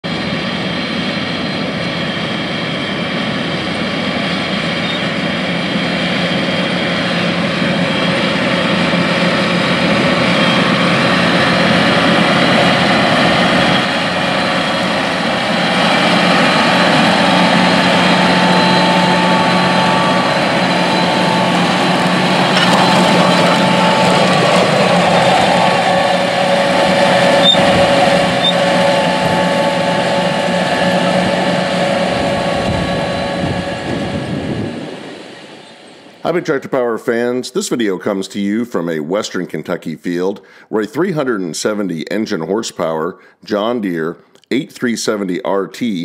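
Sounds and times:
tractor diesel engine running: 0:00.0 - 0:36.7.

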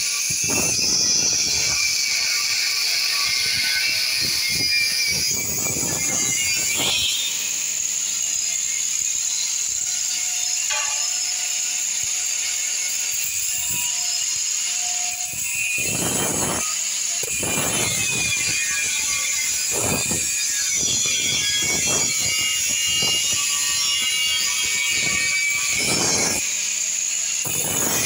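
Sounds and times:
angle grinder cutting steel: 0:00.0 - 0:28.0.

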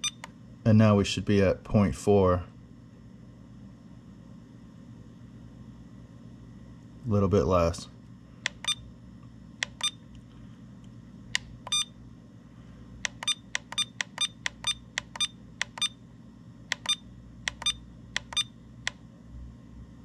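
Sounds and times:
charger short high beeps: 0:00.0 - 0:00.2, 0:11.7 - 0:11.9.

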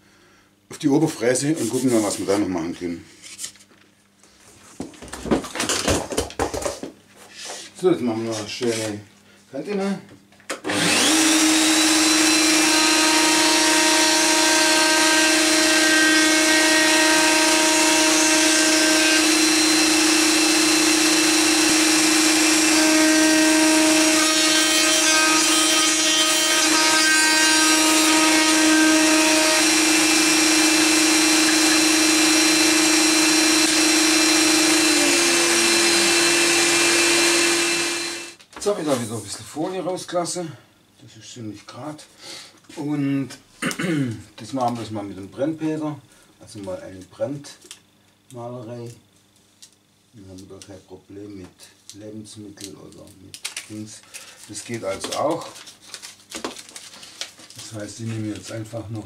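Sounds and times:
wood router whining: 0:10.5 - 0:38.4
router cutting wooden board: 0:10.6 - 0:38.4.

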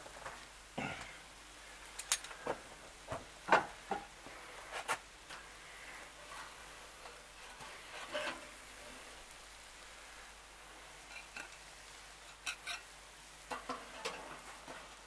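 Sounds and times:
spatula scraping grill grate: 0:04.7 - 0:09.3, 0:11.0 - 0:11.6, 0:12.2 - 0:15.0.

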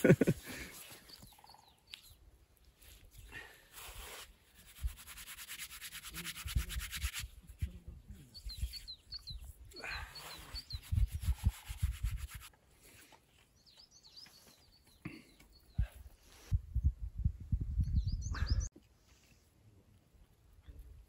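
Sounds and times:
small birds chirping: 0:00.3 - 0:03.4, 0:07.4 - 0:19.2
hands rubbing snow: 0:02.8 - 0:07.4, 0:10.2 - 0:12.5.

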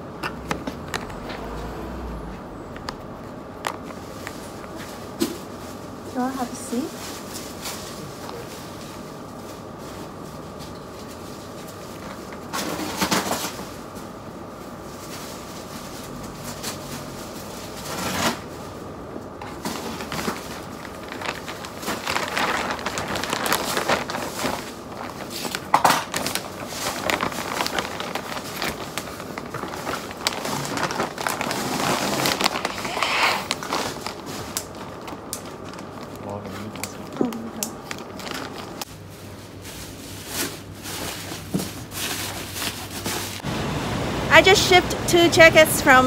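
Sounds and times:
plastic bag crinkling: 0:19.4 - 0:43.5.

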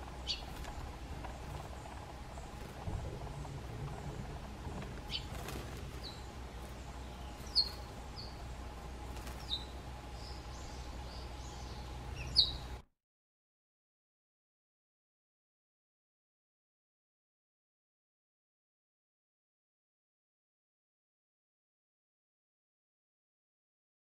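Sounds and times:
wings fluttering in gravel: 0:00.0 - 0:08.0, 0:09.0 - 0:09.8
sparrows chirping: 0:00.0 - 0:12.8
steady low hum: 0:00.0 - 0:12.9.

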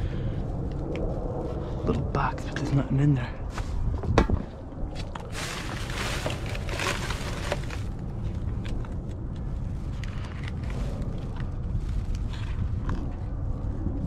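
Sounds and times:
steady low rumble: 0:00.0 - 0:14.0
plastic bag rustling: 0:05.1 - 0:08.0
cardboard boxes clicking and rattling: 0:05.3 - 0:07.9.

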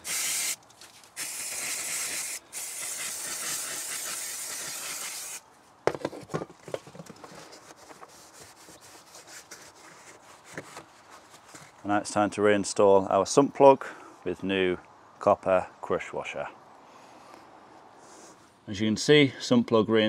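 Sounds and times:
aerosol spray hissing: 0:00.0 - 0:00.6, 0:01.2 - 0:05.4.

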